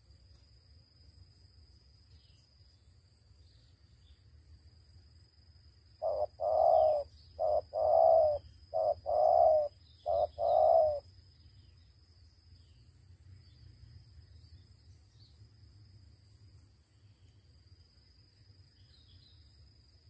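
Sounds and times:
dove cooing: 0:06.0 - 0:11.0.

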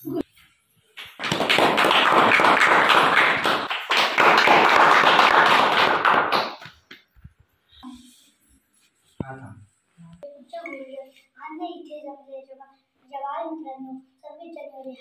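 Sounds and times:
audience applause: 0:01.1 - 0:06.6.

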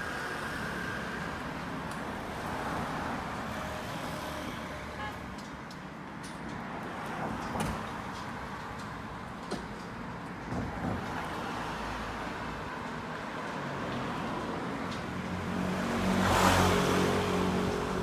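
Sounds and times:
cars driving past: 0:10.4 - 0:18.0.

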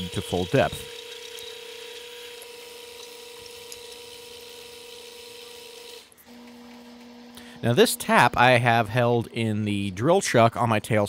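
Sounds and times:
lathe motor whine: 0:00.0 - 0:08.7.

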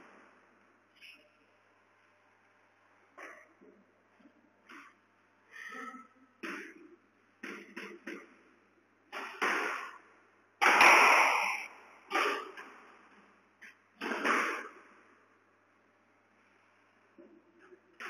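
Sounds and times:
squash ball smacks: 0:07.4 - 0:08.4, 0:09.1 - 0:12.8, 0:14.0 - 0:14.9.

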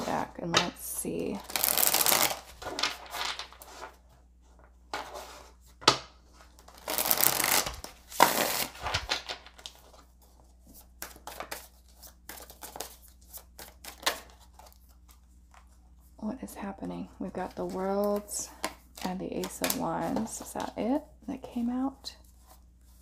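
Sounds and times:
cards being shuffled: 0:01.4 - 0:04.0, 0:06.4 - 0:15.8, 0:17.5 - 0:20.9.

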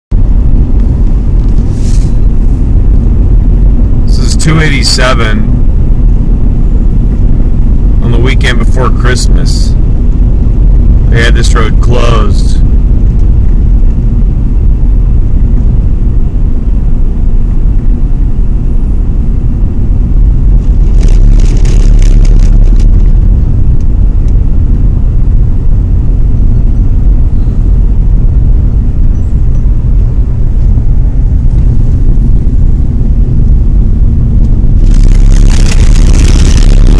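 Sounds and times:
vehicle road noise rumble: 0:00.0 - 0:36.9
crackling: 0:20.5 - 0:24.5, 0:34.3 - 0:36.9.

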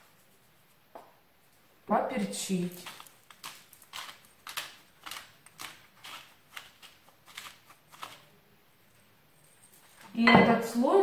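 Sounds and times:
pepper mill grinding: 0:02.2 - 0:08.3.

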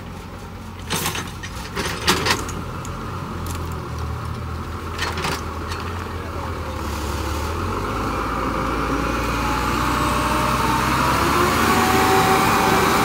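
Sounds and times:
diesel truck engine idling: 0:02.4 - 0:12.1.

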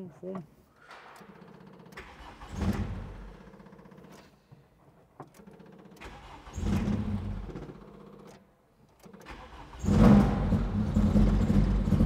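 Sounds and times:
car engine cranking and starting: 0:01.1 - 0:04.5, 0:05.2 - 0:12.0
click: 0:08.3 - 0:09.4.

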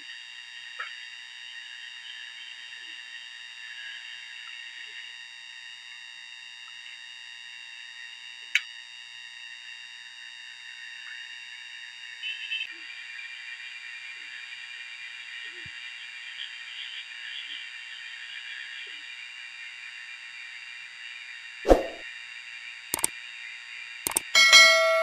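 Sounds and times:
chorus of frogs and insects: 0:00.0 - 0:05.4, 0:12.2 - 0:21.6
sharp click: 0:21.7 - 0:22.0, 0:24.1 - 0:24.3.

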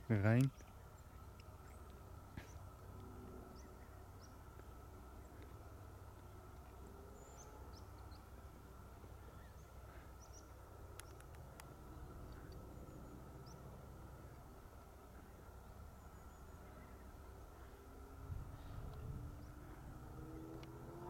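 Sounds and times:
low steady rumble: 0:00.0 - 0:21.0
sharp clicks: 0:10.9 - 0:11.7.

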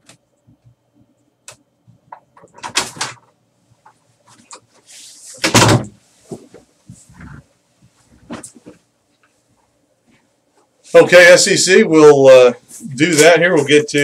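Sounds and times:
person sitting in office chair: 0:00.0 - 0:14.0
door opening or closing: 0:05.4 - 0:06.0.

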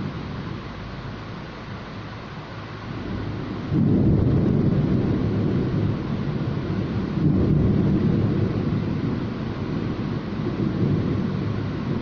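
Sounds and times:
rain hissing: 0:00.0 - 0:12.0
thunder rumbling: 0:02.8 - 0:12.0.

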